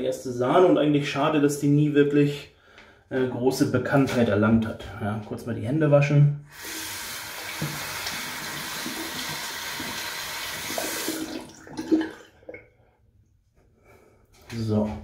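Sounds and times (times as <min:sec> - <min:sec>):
tap water splashing on hands: 0:07.4 - 0:12.7.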